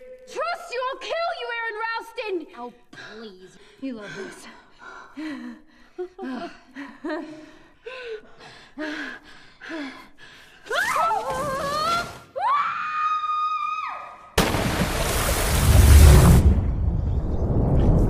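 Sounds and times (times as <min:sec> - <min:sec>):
woman screaming: 0:10.7 - 0:14.2
body splashing into water: 0:14.4 - 0:16.1.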